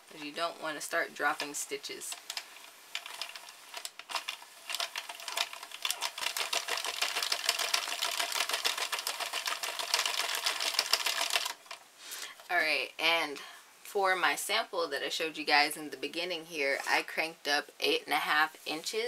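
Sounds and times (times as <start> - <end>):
knitting machine needles clicking: 1.3 - 11.8.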